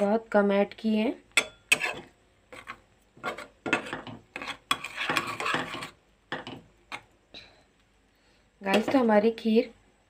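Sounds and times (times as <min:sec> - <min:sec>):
spatula tapping pan: 0:01.3 - 0:07.1
spatula scraping metal pan: 0:01.4 - 0:07.1.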